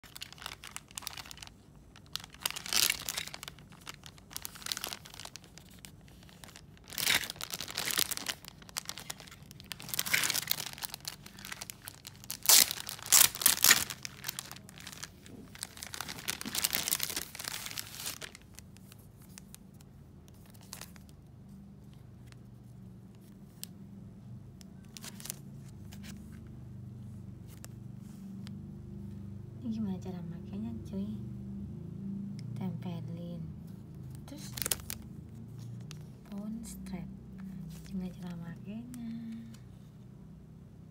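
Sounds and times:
plastic bag crinkling and tearing: 0:00.0 - 0:21.2, 0:24.8 - 0:26.4, 0:34.1 - 0:36.2
faint low hum: 0:00.0 - 0:40.9.

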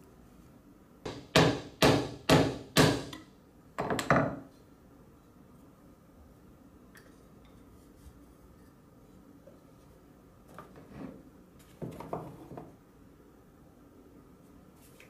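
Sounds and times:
hand tools knocking on workbench: 0:01.1 - 0:03.2.

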